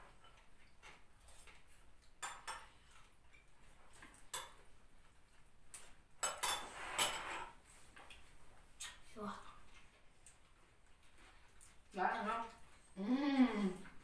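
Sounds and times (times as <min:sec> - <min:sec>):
cutlery and dishes clinking: 0:00.0 - 0:08.2
cutlery scraping plates: 0:00.9 - 0:04.7, 0:06.2 - 0:07.7.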